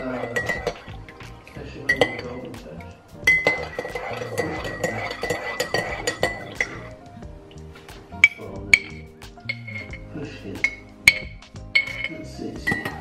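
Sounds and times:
teaspoon clinking in ceramic mug: 0:00.0 - 0:01.0, 0:01.9 - 0:02.4, 0:03.3 - 0:06.8, 0:08.2 - 0:13.0.

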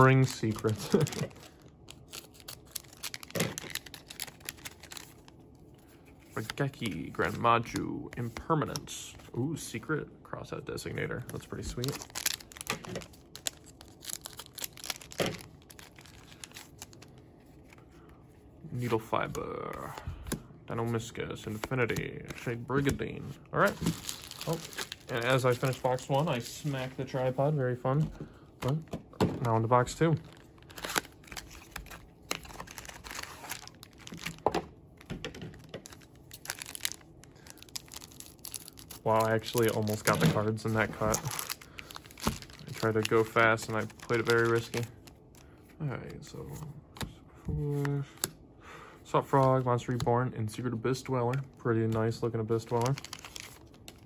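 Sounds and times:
foil wrapper crinkling: 0:00.0 - 0:05.4, 0:11.3 - 0:17.2, 0:23.6 - 0:26.6, 0:29.7 - 0:45.5, 0:52.6 - 0:54.0.

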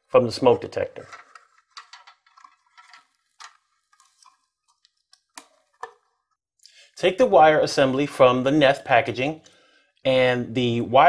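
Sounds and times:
plastic wire nuts twisting: 0:01.0 - 0:06.0.

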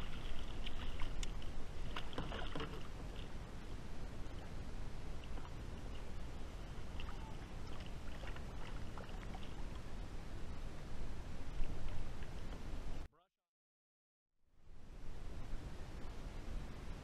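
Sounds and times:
water splashing: 0:00.0 - 0:10.0.

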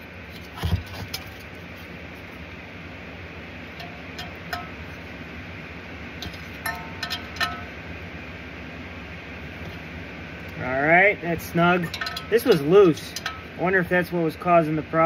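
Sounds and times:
steady low hum: 0:00.0 - 0:15.0
wrench clinking on metal: 0:06.3 - 0:07.7, 0:11.8 - 0:13.4.

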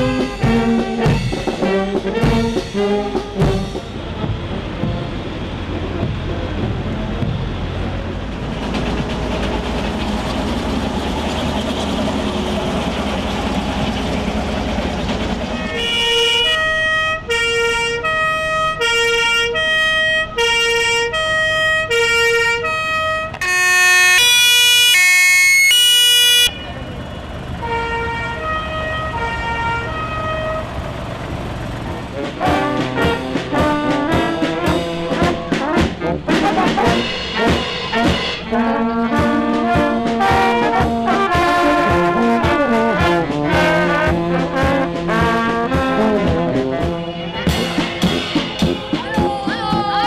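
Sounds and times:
harvester diesel engine rumbling: 0:00.0 - 0:50.0
loud multi-note horn: 0:15.4 - 0:26.8, 0:27.6 - 0:30.6, 0:32.1 - 0:49.1
two-tone fire engine siren: 0:15.5 - 0:26.9, 0:27.6 - 0:30.8.

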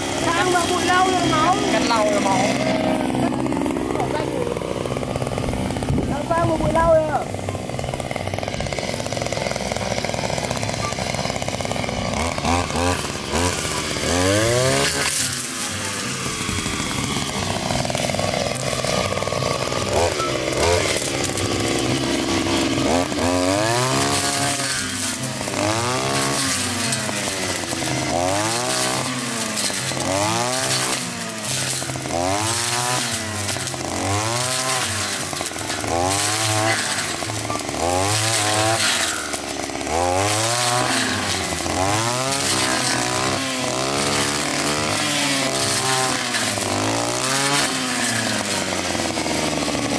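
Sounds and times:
brush cutter revving: 0:00.0 - 0:49.9.

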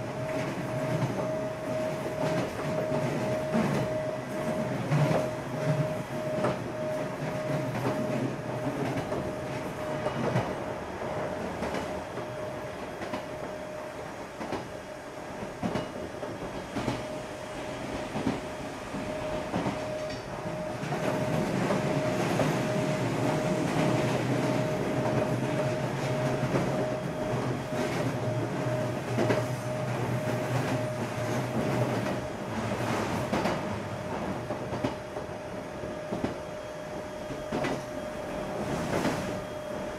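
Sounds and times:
electric train hum: 0:00.0 - 0:39.9
train wheels clicking over rail joints: 0:15.4 - 0:17.2, 0:29.0 - 0:35.3.

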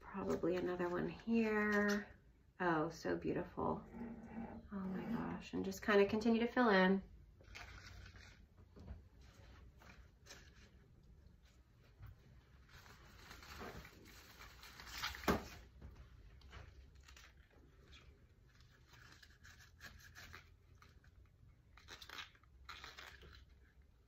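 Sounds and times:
flower stems rustling: 0:07.4 - 0:11.6.

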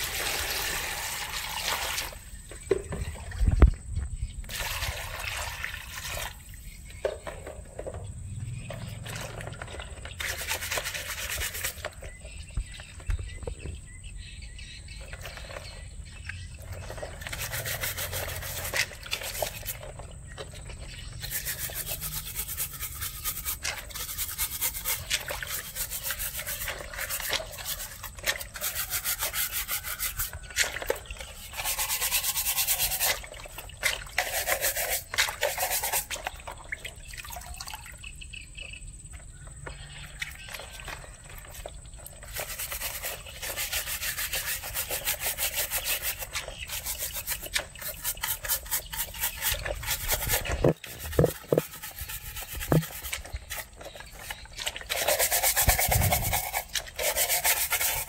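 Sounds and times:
brush scrubbing shells in water: 0:08.6 - 0:13.1, 0:14.5 - 0:37.6, 0:39.7 - 0:58.0.

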